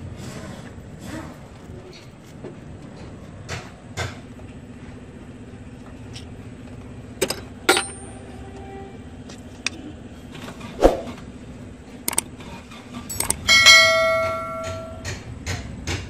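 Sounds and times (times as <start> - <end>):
steady low hum: 4.2 - 15.2
metal clinks and knocks: 7.2 - 8.2, 12.9 - 15.2.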